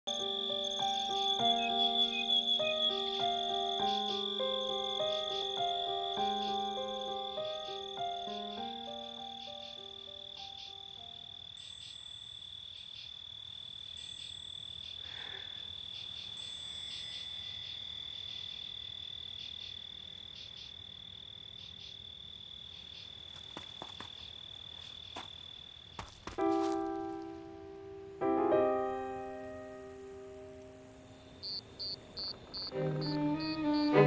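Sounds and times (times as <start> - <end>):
piano notes: 0.1 - 11.2, 26.4 - 31.0, 32.7 - 34.0
crickets trilling: 0.1 - 27.1, 28.6 - 34.0.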